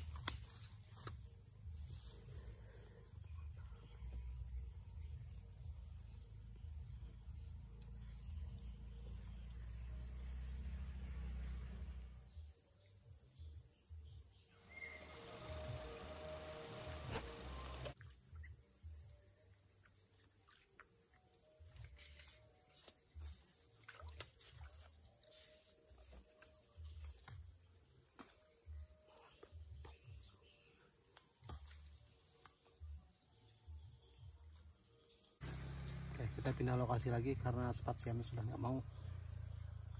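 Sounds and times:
insects chirring: 0.0s - 39.9s
loud high hiss: 14.7s - 18.0s.

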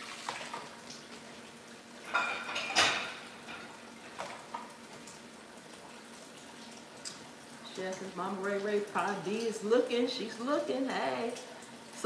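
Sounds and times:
dishes and utensils handled: 2.1s - 3.7s.

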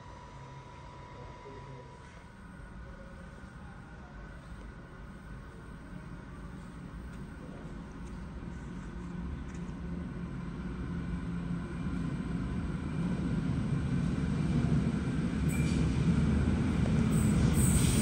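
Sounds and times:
electric train rumbling: 3.8s - 18.0s.

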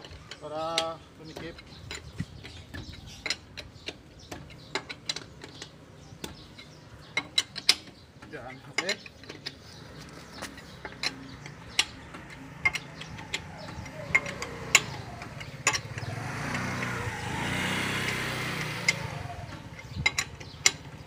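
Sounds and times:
lug wrench clicking on nuts: 0.0s - 21.0s
low engine hum: 9.6s - 21.0s
vehicle passing: 9.8s - 21.0s.

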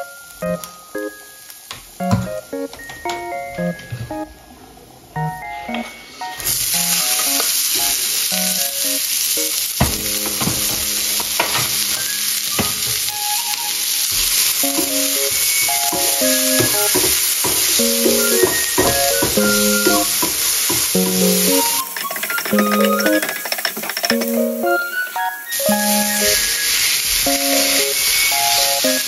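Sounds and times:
vegetables sizzling in oil: 6.1s - 29.0s
wooden spatula knocking pan: 9.8s - 12.0s, 12.6s - 13.1s, 14.2s - 24.3s.

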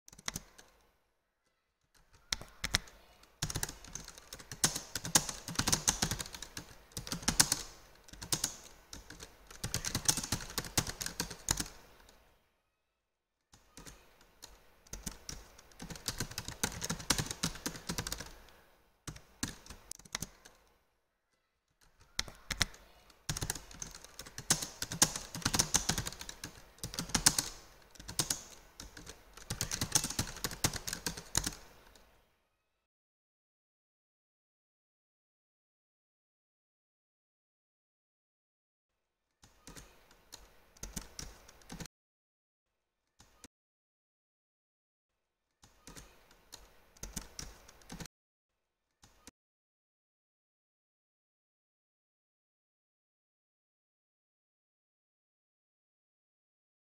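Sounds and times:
keyboard typing: 0.1s - 0.9s, 1.9s - 12.2s, 13.6s - 20.8s, 21.8s - 32.1s, 39.4s - 41.9s, 45.6s - 48.1s.

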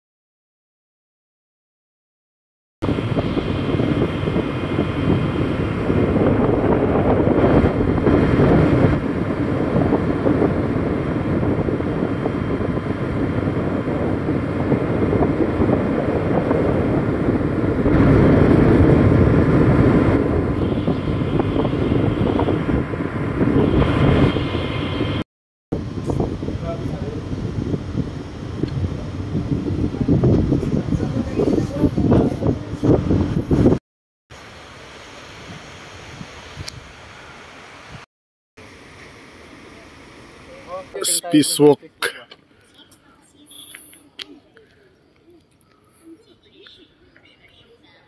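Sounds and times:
wind buffeting microphone: 2.8s - 33.8s
wind and sea noise: 2.8s - 48.0s.

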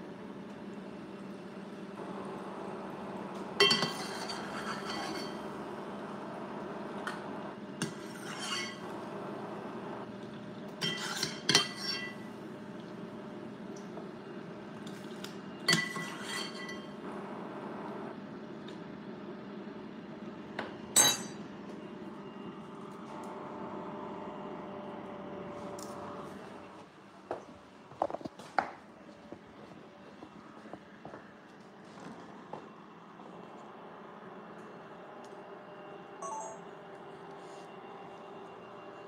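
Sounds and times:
steady background hum: 0.0s - 39.0s
metal spoon clinking against pans: 3.6s - 5.4s, 10.8s - 12.3s, 15.7s - 17.0s, 21.0s - 21.4s.

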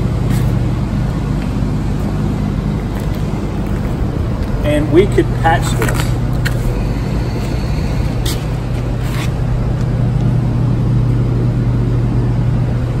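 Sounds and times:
machine drone: 0.0s - 13.0s.

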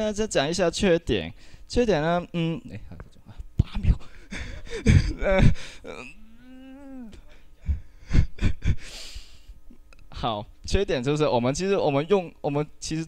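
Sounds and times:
man talking: 0.0s - 4.2s, 10.1s - 13.0s
man's hesitation sound: 3.7s - 9.4s
breathy hiss: 7.2s - 9.6s.

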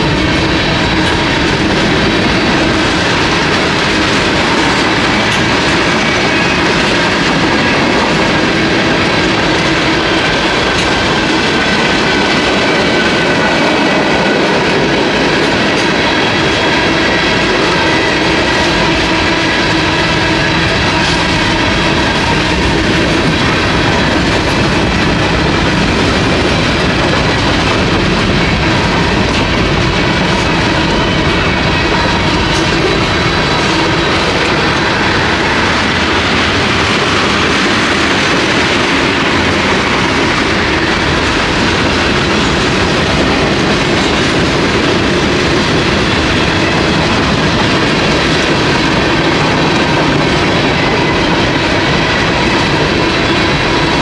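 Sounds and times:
freight train rolling past: 0.0s - 54.0s.

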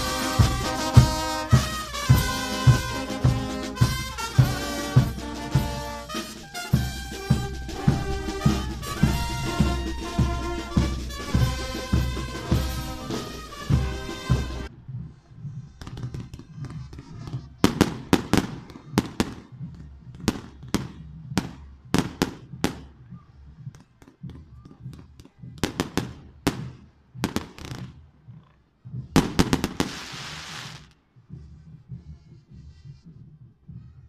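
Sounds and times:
hissing crackling firework burst: 29.2s - 30.9s
fireworks bangs: 29.2s - 31.0s.

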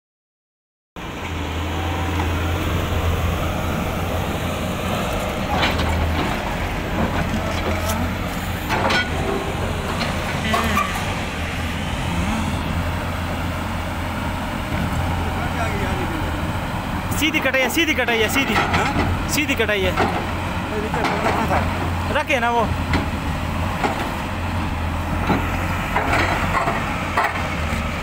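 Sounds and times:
excavator diesel engine running: 1.0s - 28.0s
sharp knocks and scrapes: 5.5s - 11.2s.

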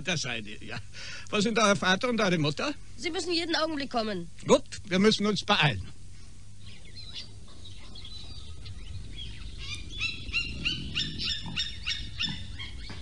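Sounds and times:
bird chirping: 6.6s - 13.0s
lions growling: 9.0s - 13.0s.

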